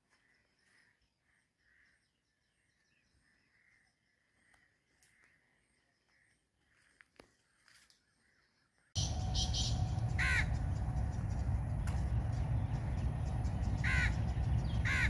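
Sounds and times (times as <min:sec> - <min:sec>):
crow cawing: 0:09.0 - 0:10.8, 0:13.8 - 0:15.0
steady low rumble: 0:09.0 - 0:15.0.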